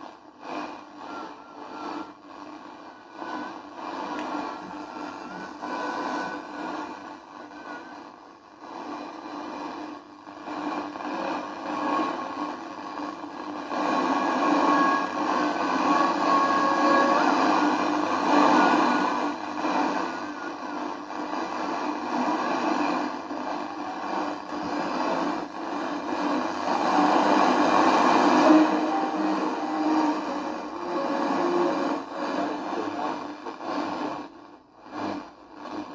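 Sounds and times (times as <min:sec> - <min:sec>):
radio static hiss: 0:00.4 - 0:35.9
faint radio whistles: 0:01.0 - 0:02.2, 0:14.4 - 0:21.1.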